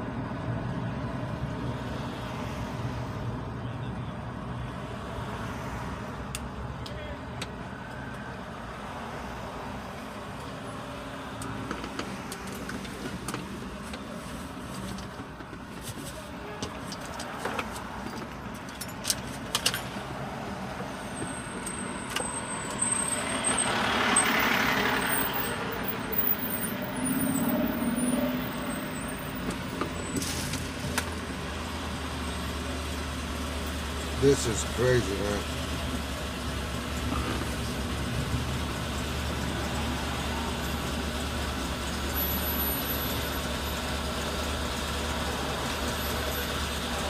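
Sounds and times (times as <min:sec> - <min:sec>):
city traffic rumble: 0:00.0 - 0:47.0
vehicle passing close by: 0:22.8 - 0:30.8.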